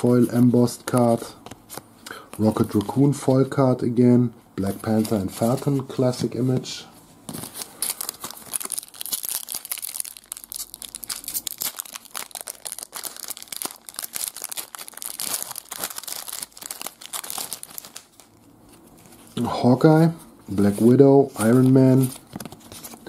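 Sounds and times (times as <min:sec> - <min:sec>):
foil pack crinkling and tearing: 0:07.4 - 0:18.4.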